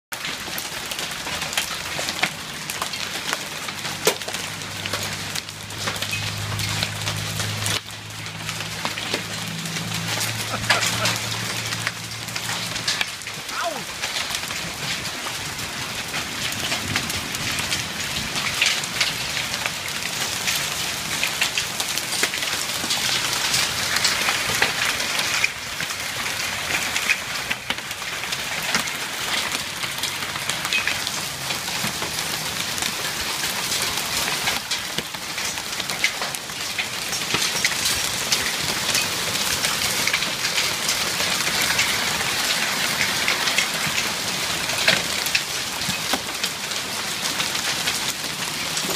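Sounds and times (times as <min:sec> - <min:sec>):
heavy rain: 0:00.1 - 0:48.9
hailstones ticking: 0:00.2 - 0:48.9.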